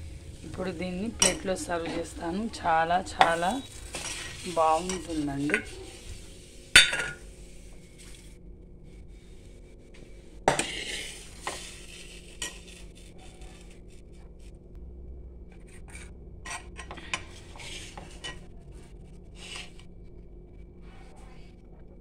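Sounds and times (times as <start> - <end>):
metal bowls clattering on counter: 1.0 - 6.0, 6.8 - 7.2.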